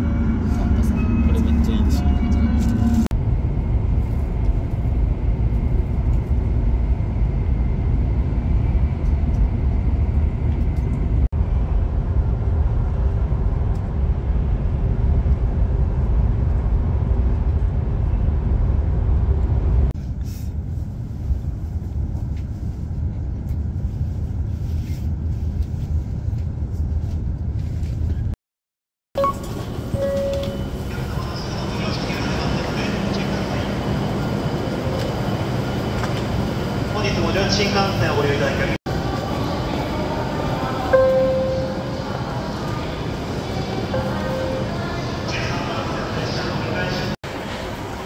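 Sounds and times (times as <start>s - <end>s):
vehicle low rumble: 0.0s - 28.4s.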